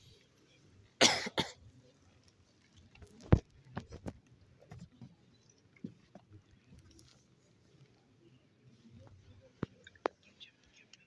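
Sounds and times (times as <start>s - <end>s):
person coughing: 1.0s - 1.6s.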